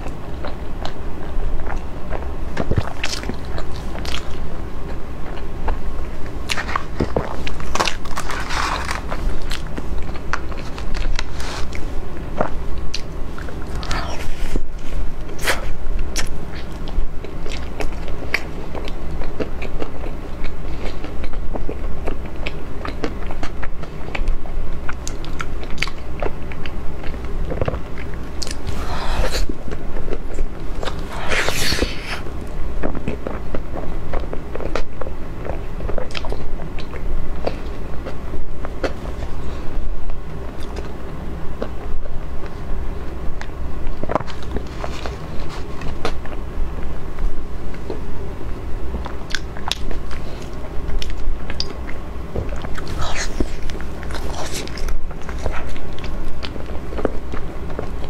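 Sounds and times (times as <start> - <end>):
chewing with wet lip smacks: 9.0 - 39.3, 49.0 - 58.0.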